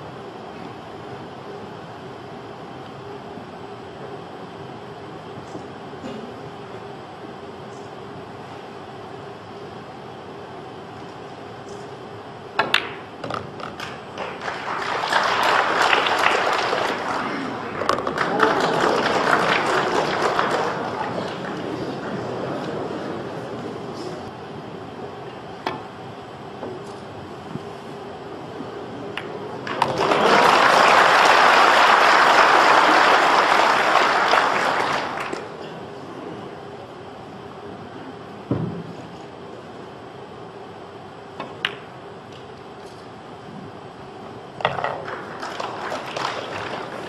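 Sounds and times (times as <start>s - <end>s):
cue striking pool ball: 12.6s - 13.8s, 44.6s - 45.2s
cue and balls clicking: 12.6s - 14.4s, 17.7s - 18.4s, 41.4s - 42.5s, 44.6s - 45.3s
pool balls clicking together: 12.6s - 14.4s, 17.7s - 21.7s, 44.6s - 47.0s
audience applause: 13.8s - 23.3s, 29.6s - 35.6s, 45.0s - 47.0s.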